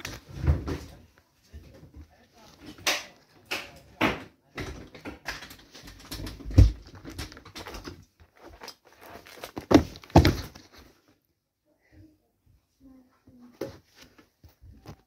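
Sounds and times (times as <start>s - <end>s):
plastic cups clattering: 2.6s - 10.8s
shoe stomping on plastic cup: 9.6s - 10.6s.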